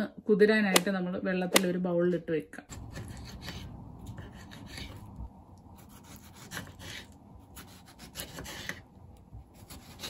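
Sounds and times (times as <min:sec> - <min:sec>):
knife slicing tomato: 0:02.7 - 0:10.0.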